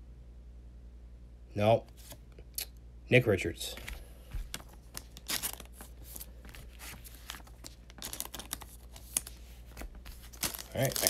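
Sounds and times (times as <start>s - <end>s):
cards tapping: 3.8s - 11.0s
plastic sleeve crinkling: 3.8s - 11.0s.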